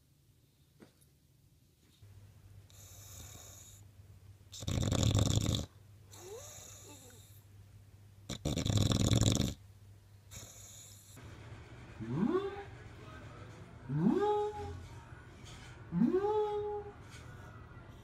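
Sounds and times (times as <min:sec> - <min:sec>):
dog snoring: 0:02.7 - 0:03.8, 0:04.5 - 0:07.4, 0:08.3 - 0:09.6, 0:10.3 - 0:11.2.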